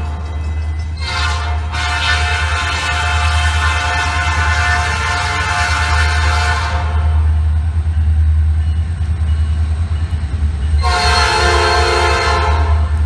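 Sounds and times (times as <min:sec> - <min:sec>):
train rumbling: 0:00.0 - 0:13.0
locomotive air horn: 0:01.0 - 0:07.3, 0:10.8 - 0:13.0.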